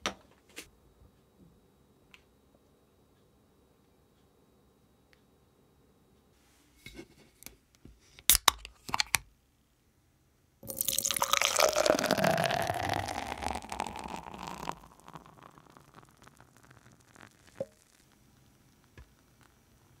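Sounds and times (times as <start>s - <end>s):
beer pouring and fizzing in glass: 10.6s - 20.0s.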